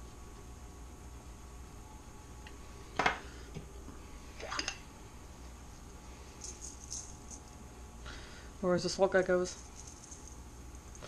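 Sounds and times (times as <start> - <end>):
gritty shaker shakes: 6.1 - 7.6, 9.3 - 11.0.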